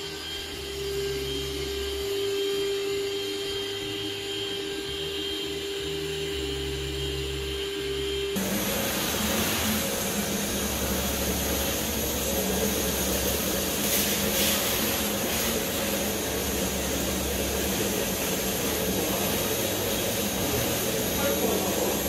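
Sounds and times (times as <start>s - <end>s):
vacuum cleaner running: 0.0s - 22.0s.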